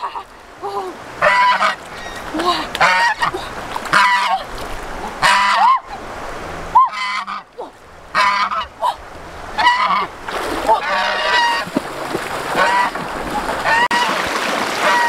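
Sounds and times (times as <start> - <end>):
water sloshing: 0.0 - 15.0
goose honking: 1.2 - 2.2, 2.8 - 4.4, 5.2 - 5.9, 6.8 - 7.5, 8.1 - 8.7, 9.6 - 10.1, 10.7 - 11.7, 12.6 - 13.0, 13.6 - 14.2, 14.8 - 15.0.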